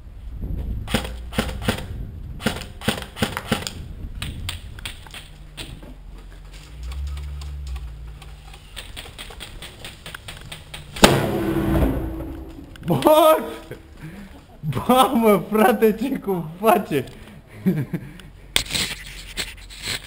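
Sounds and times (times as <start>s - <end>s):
airsoft rifle firing sharp clicks: 0.9s - 5.3s.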